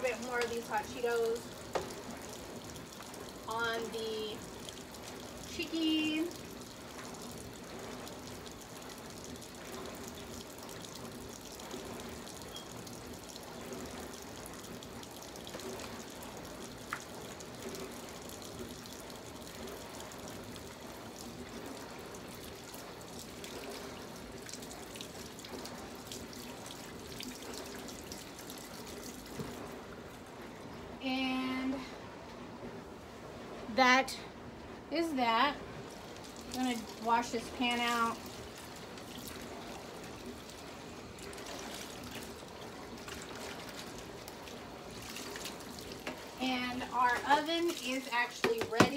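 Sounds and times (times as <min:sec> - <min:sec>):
tap running into sink: 0:47.7 - 0:48.9.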